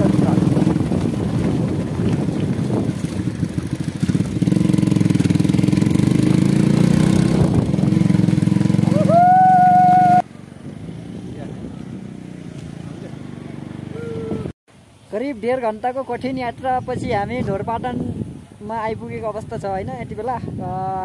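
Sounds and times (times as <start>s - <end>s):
motorcycle engine running: 0.0s - 14.5s.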